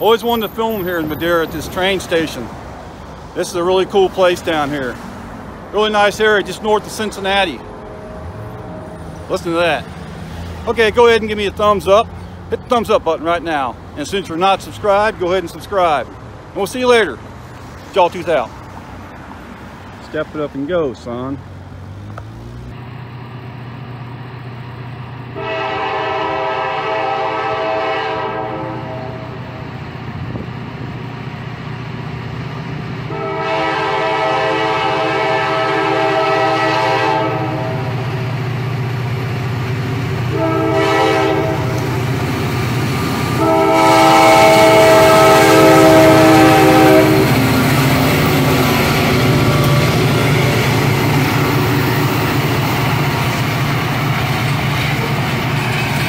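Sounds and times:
locomotive engines rumbling: 0:00.0 - 0:56.0
locomotive air horn: 0:25.4 - 0:29.5, 0:33.1 - 0:38.1, 0:40.3 - 0:42.0, 0:43.3 - 0:47.6.

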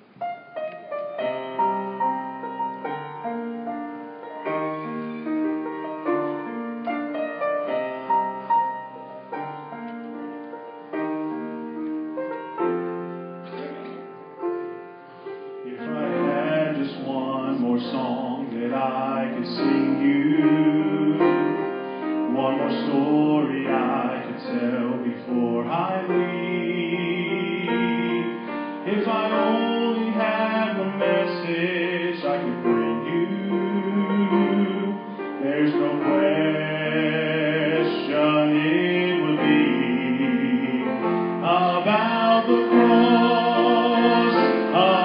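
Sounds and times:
grand piano playing chords: 0:00.0 - 0:45.0
person singing: 0:15.6 - 0:45.0.

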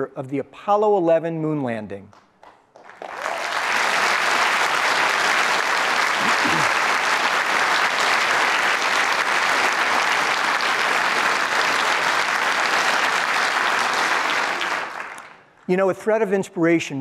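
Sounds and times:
audience applauding: 0:02.4 - 0:15.5.

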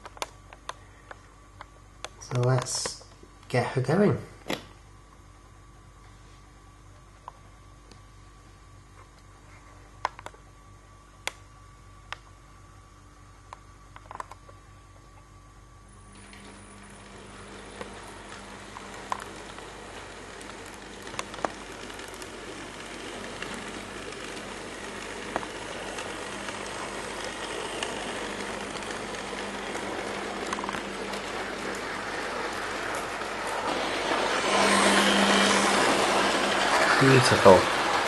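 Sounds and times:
model train motor hum: 0:16.1 - 0:38.0
model train wheel rumble: 0:16.2 - 0:38.0.

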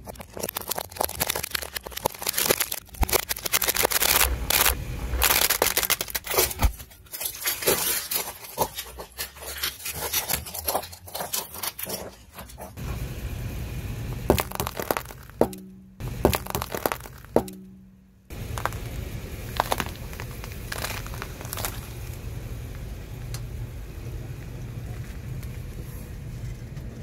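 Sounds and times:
candy cracking under tyre: 0:00.0 - 0:12.8, 0:14.3 - 0:17.6, 0:18.3 - 0:23.4
tyre crushing apples: 0:00.0 - 0:13.0, 0:14.1 - 0:22.3
car low rumble: 0:00.6 - 0:07.0, 0:12.6 - 0:27.0.

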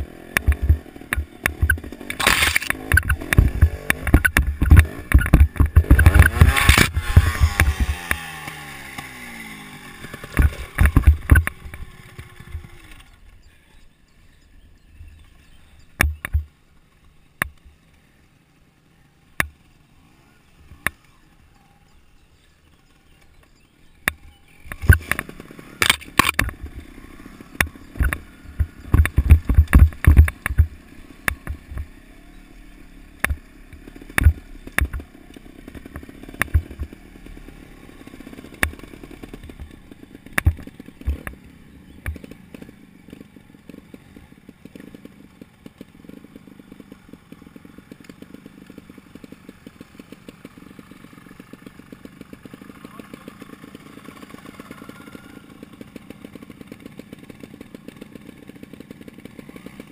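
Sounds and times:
scattered clicks: 0:00.0 - 0:09.1, 0:10.1 - 0:13.5, 0:15.0 - 0:17.8, 0:23.2 - 0:26.8, 0:27.5 - 0:31.9, 0:33.2 - 0:37.4, 0:38.3 - 0:44.0
motorcycle engine running hard: 0:00.0 - 0:59.9.

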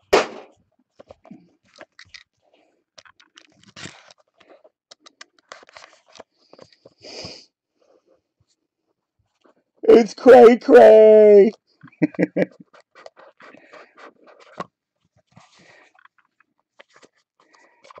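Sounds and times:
cardboard scraping rub: 0:12.7 - 0:14.6.

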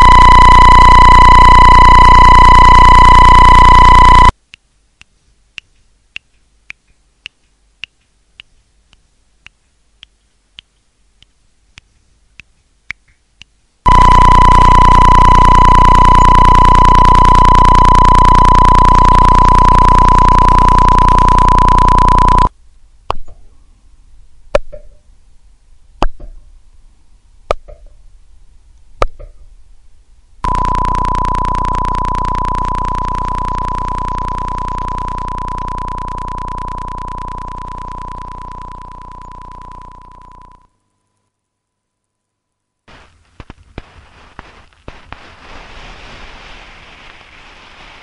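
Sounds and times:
buzzy electronic tone: 0:13.9 - 0:22.5.

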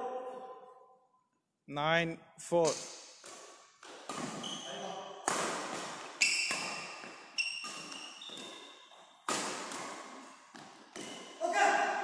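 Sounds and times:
racket hitting shuttlecock: 0:02.6 - 0:12.0
shoes squeaking on court floor: 0:02.7 - 0:11.5.

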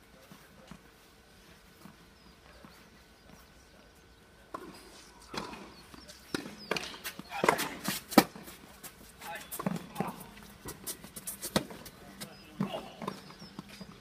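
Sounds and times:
tennis ball bouncing: 0:04.5 - 0:08.6, 0:09.5 - 0:14.0.

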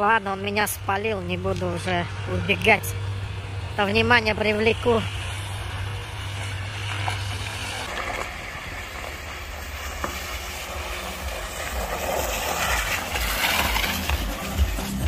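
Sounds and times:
low car engine: 0:00.0 - 0:15.0
tyres hissing in slush: 0:04.5 - 0:15.0.

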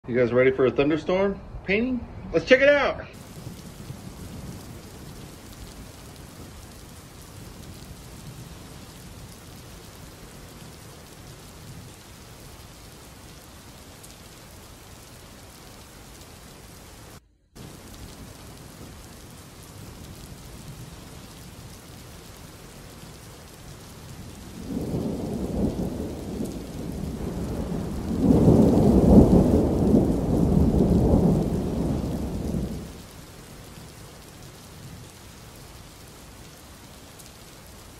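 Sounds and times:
steady rain: 0:02.7 - 0:37.9
deep roll of thunder: 0:03.2 - 0:12.6, 0:23.2 - 0:33.2.

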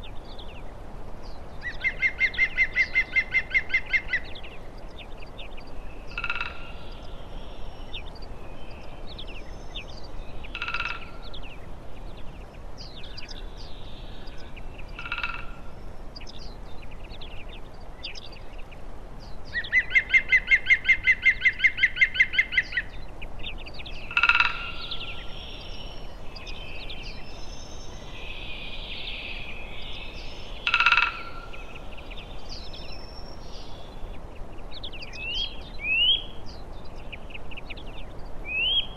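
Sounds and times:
high bird chirps: 0:23.8 - 0:34.1
fast bird trill: 0:24.0 - 0:34.1.

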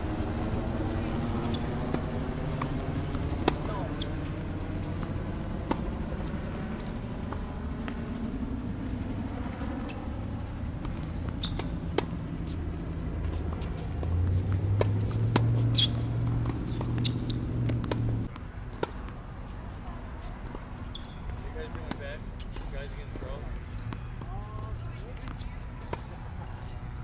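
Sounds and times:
vehicle engine humming: 0:00.0 - 0:27.0
high squeak: 0:15.6 - 0:16.1, 0:20.8 - 0:21.2.

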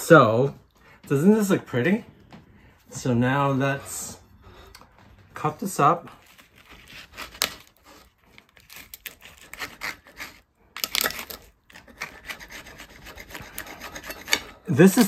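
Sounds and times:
knife sawing through tortilla: 0:06.2 - 0:15.0.

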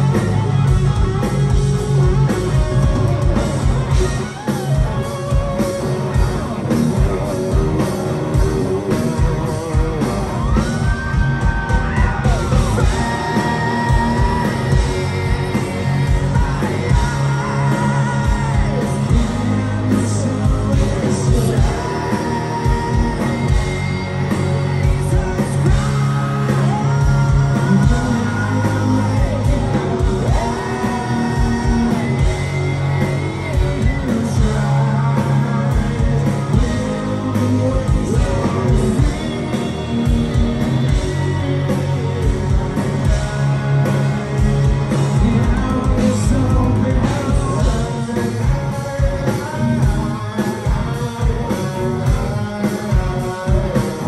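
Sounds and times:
live rock band playing: 0:00.0 - 0:54.0
person singing lead vocals: 0:00.0 - 0:54.0.

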